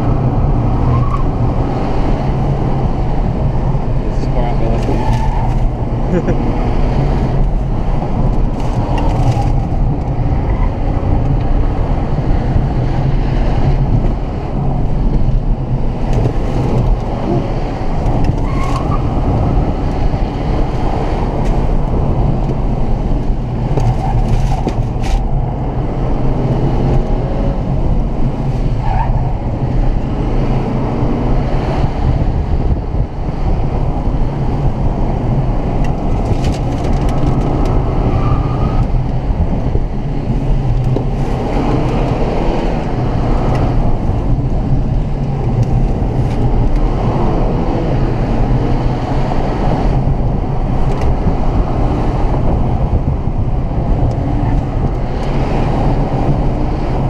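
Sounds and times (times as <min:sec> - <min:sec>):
tyre and road noise: 0:00.0 - 0:57.0.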